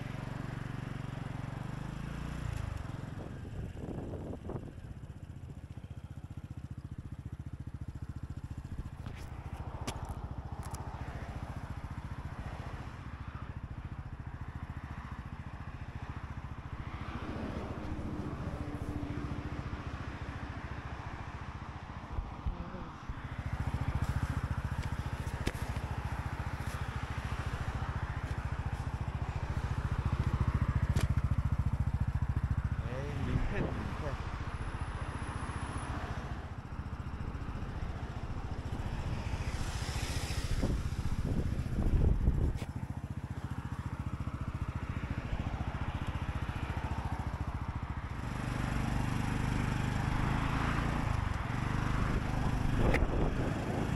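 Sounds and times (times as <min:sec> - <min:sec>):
motorcycle engine puttering: 0:23.2 - 0:35.4.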